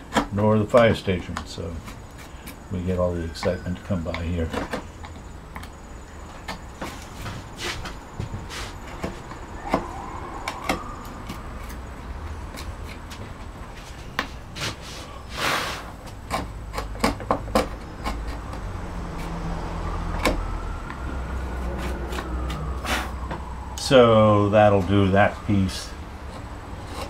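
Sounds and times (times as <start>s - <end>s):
road traffic rumble: 0.0s - 27.0s
faint rising and falling tone: 8.0s - 12.5s, 18.4s - 26.8s
short hiss: 14.9s - 15.9s
mallet striking carving gouge: 16.1s - 19.4s.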